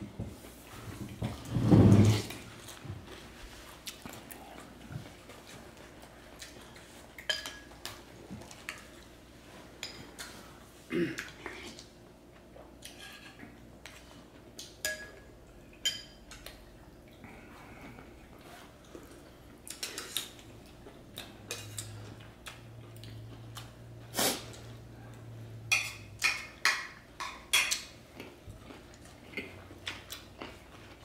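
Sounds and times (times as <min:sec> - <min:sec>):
utensils clinking against plates: 0:14.8 - 0:16.5.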